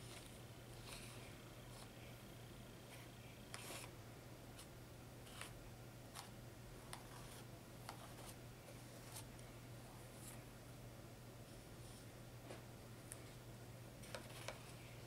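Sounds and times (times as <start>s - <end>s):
low steady hum: 0.0s - 15.0s
palette knife scraping: 3.5s - 3.9s.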